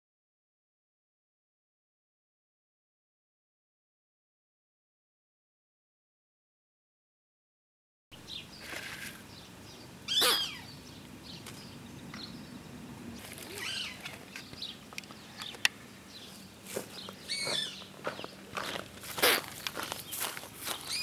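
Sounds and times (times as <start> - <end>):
animal call sweeping down: 10.1 - 10.6
faint animal chirps: 10.1 - 10.7, 13.4 - 14.0.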